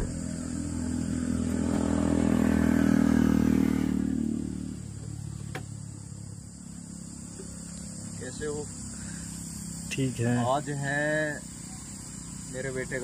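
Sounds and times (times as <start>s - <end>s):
vehicle engine passing by: 0.0s - 8.8s.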